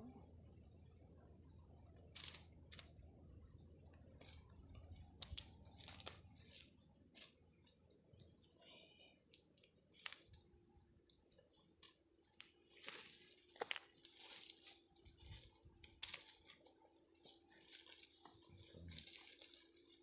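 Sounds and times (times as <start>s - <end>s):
mesh bag and leaves rustling: 12.6s - 20.0s.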